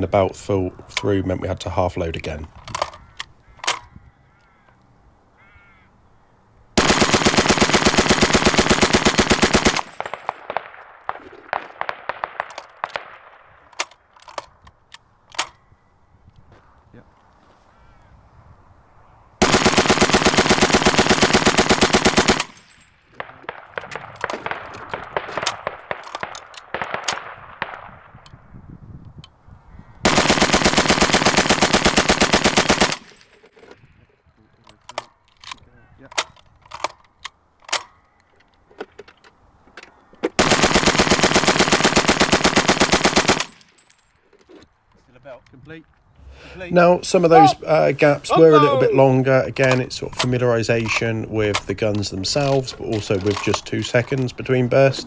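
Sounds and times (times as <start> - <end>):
scattered shots and rattle: 6.8 - 10.7, 19.4 - 27.8, 30.1 - 33.5, 40.4 - 43.8
machine gun firing bursts: 6.8 - 13.2, 19.4 - 26.1, 30.0 - 33.2, 40.4 - 43.6.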